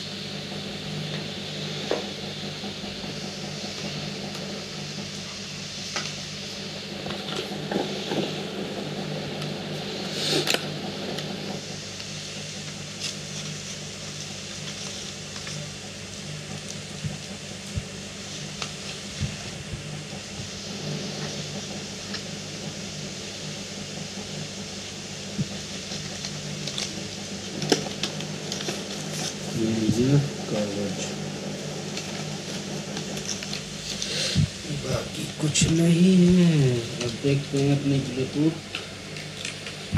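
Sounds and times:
steady hum and hiss: 0.0 - 39.9.

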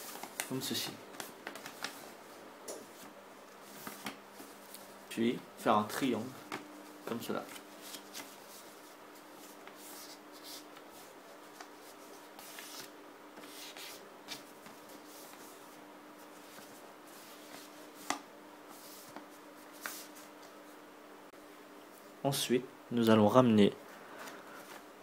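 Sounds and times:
paper rustling being folded: 0.0 - 2.2, 2.9 - 5.0, 6.0 - 20.3
faint steady hum: 0.0 - 25.0.

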